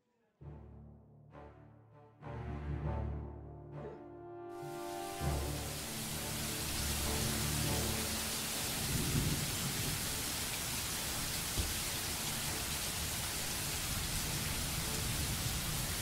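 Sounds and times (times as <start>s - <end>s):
steady rain: 4.6s - 16.0s
low rumble of thunder: 8.6s - 12.0s, 12.7s - 16.0s.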